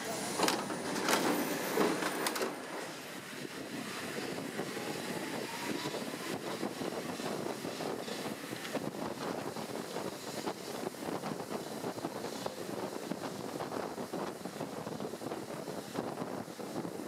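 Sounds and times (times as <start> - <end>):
train rumble and rattle: 0.0 - 17.0.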